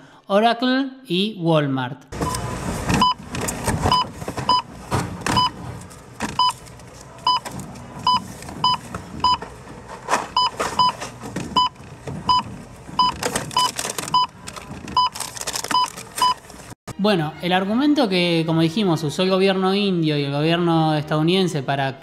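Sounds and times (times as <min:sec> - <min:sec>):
barcode scanner beeping: 0:07.2 - 0:09.4, 0:11.6 - 0:16.4.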